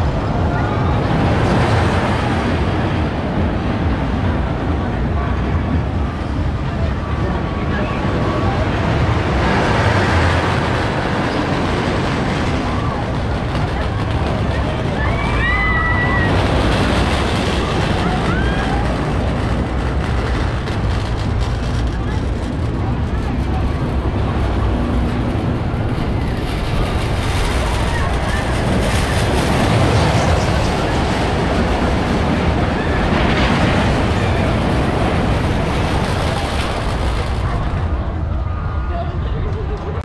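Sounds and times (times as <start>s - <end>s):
roller coaster rumbling: 0.0s - 40.0s
high squeals or shouts: 15.0s - 16.4s.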